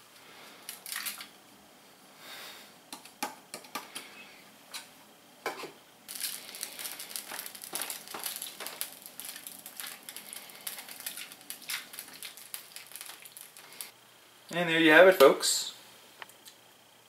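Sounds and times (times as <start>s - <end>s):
foil pan crinkling and scraping: 6.1s - 13.9s.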